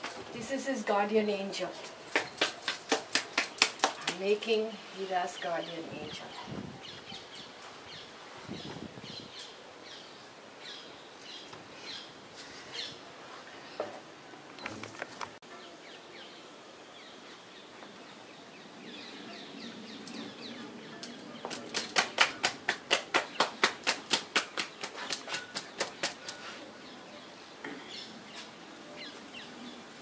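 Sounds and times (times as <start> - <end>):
birds chirping faintly: 0.0 - 22.5
rapid sharp taps: 2.1 - 4.2, 21.5 - 26.4.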